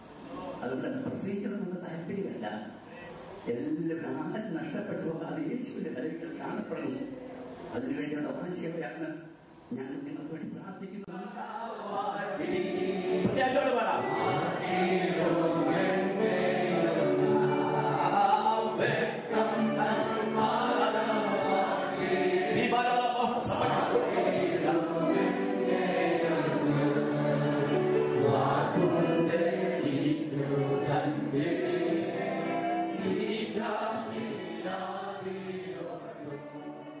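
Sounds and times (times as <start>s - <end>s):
choir singing: 11.4s - 37.0s.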